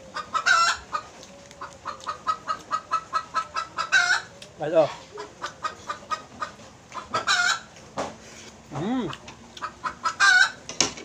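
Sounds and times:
loud chicken calls: 0:00.0 - 0:04.3, 0:05.2 - 0:07.7, 0:09.6 - 0:10.6
chickens clucking: 0:00.0 - 0:08.3, 0:09.0 - 0:11.0.

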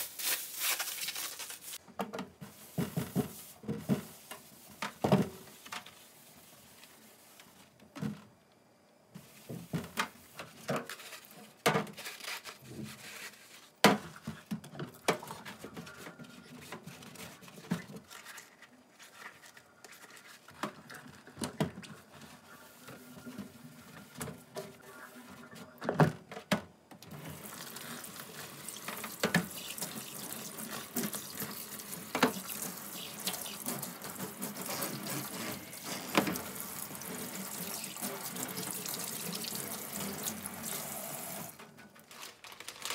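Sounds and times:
tap water running into sink: 0:27.1 - 0:41.6
sponge scrubbing a steel sink: 0:27.2 - 0:40.9.

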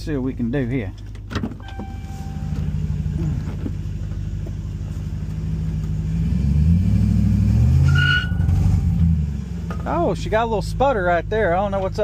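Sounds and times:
engine revving: 0:02.1 - 0:11.6.

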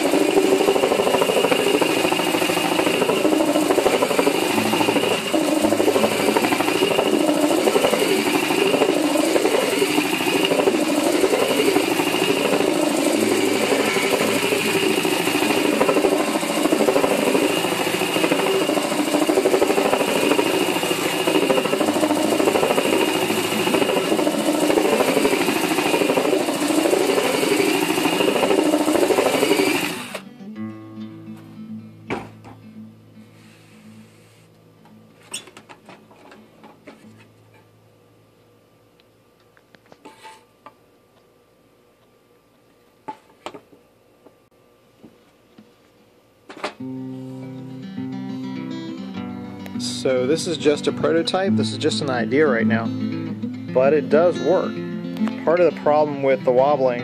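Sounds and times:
drill sander droning on wood: 0:00.0 - 0:30.2.

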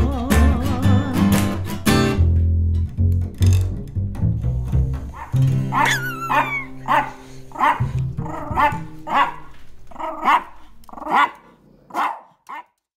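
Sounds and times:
bass notes of music: 0:00.0 - 0:11.1
small dog barking: 0:05.2 - 0:12.8.

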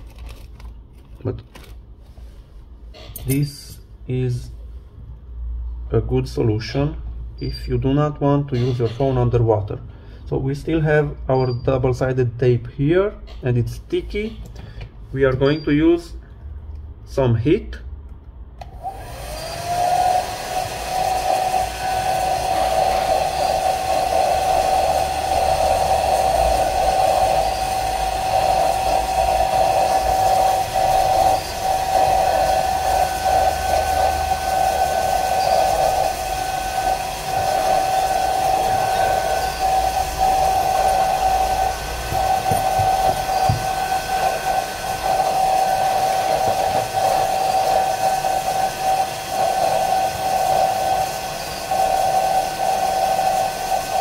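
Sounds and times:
hair dryer running: 0:18.6 - 0:54.0.

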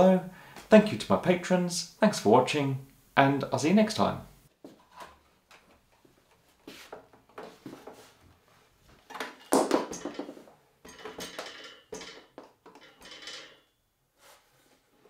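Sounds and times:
router clattering knocks and clunks: 0:09.0 - 0:13.7.

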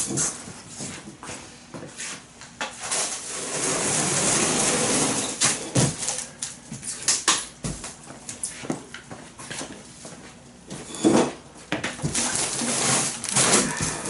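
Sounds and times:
plastic crackling against cardboard: 0:12.0 - 0:14.0.

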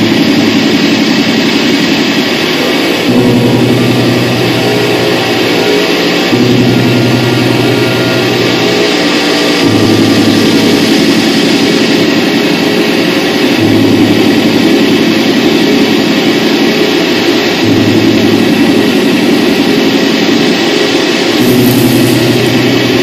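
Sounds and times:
distorted electronic noise drone: 0:00.0 - 0:23.0
deep low hum: 0:02.4 - 0:15.8.

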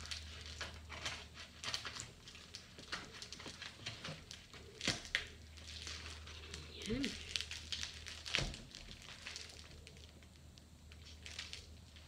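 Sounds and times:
plastic parcel crinkling: 0:00.0 - 0:12.0.

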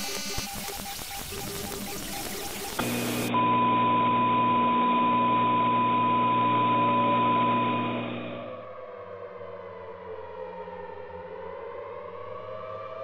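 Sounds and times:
harsh broadcast static: 0:00.0 - 0:04.2, 0:05.7 - 0:08.5
muffled steady hum: 0:02.8 - 0:08.5.

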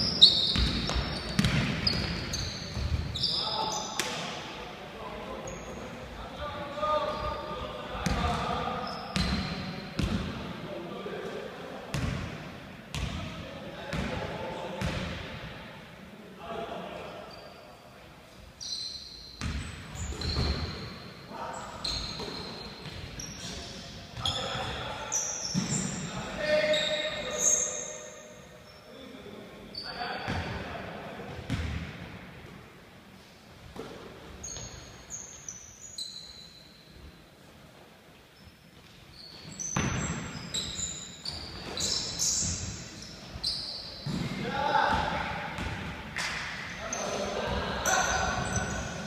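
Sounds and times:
sneakers squeaking: 0:00.0 - 0:04.4, 0:05.1 - 0:10.4, 0:11.9 - 0:14.2, 0:14.8 - 0:15.4, 0:17.0 - 0:30.7, 0:31.3 - 0:32.0, 0:33.6 - 0:37.2, 0:38.3 - 0:49.0
basketball bouncing on wooden floor: 0:00.5 - 0:02.2
players' voices: 0:23.2 - 0:28.2, 0:44.0 - 0:49.0.

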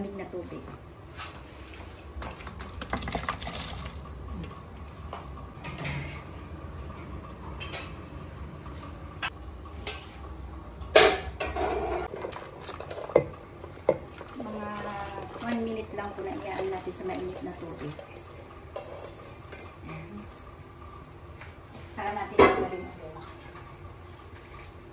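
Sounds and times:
metal bowls and pots clinking: 0:10.9 - 0:20.5, 0:22.3 - 0:23.8.

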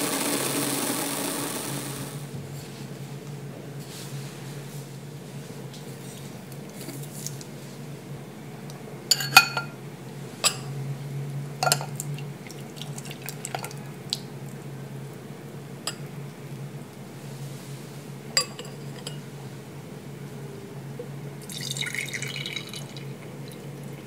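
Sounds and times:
liquid pouring into glass: 0:21.4 - 0:24.0.

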